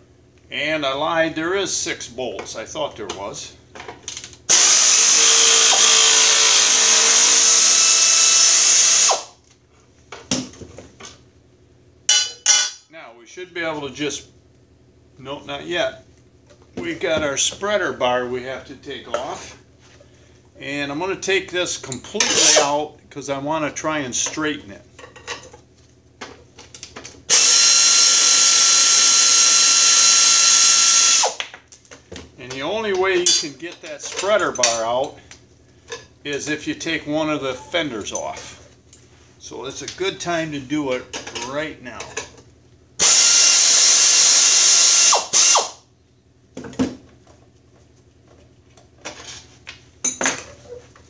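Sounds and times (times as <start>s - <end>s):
air ratchet running: 4.5s - 9.3s, 27.3s - 31.4s, 43.0s - 45.8s.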